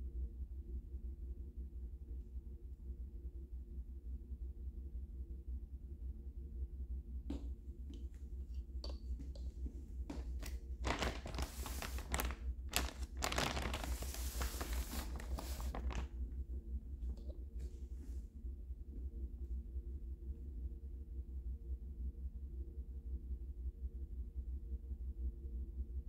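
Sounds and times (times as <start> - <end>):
steady low hum: 0.0 - 26.0
plastic wrapping crinkling: 10.1 - 16.2.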